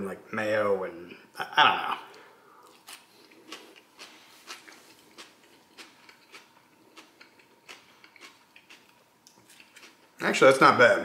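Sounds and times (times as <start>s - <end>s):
person chewing: 2.0s - 10.1s.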